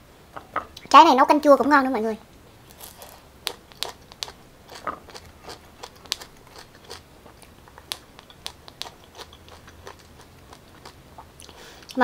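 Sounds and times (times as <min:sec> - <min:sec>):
chewing raw pineapple crunching: 0:02.6 - 0:12.0.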